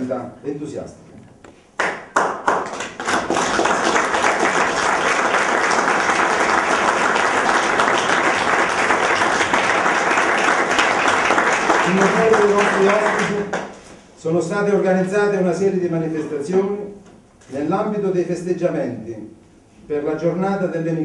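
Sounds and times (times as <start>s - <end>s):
audience applauding: 1.8s - 13.8s.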